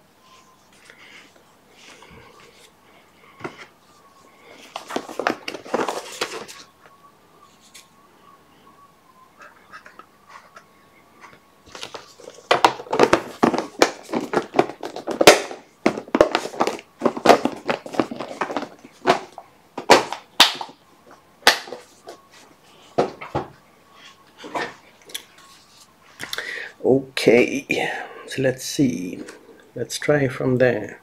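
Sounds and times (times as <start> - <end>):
plastic box clicking and rattling: 11.7 - 20.2.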